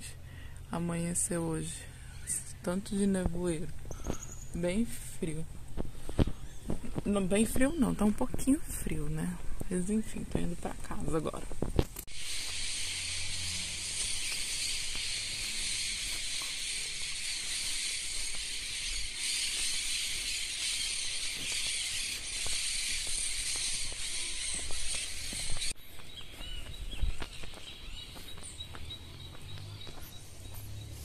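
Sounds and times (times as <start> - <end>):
high-pitched outdoor hiss: 0.0 - 31.0
footsteps on road: 3.0 - 31.0
faint chirps: 3.8 - 4.8, 12.1 - 31.0.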